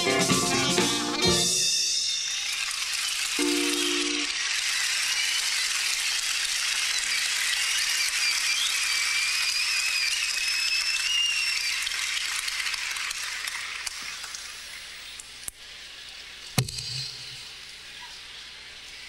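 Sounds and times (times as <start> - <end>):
audience applauding and cheering: 0.0 - 14.8
person whistling high note: 8.4 - 11.7.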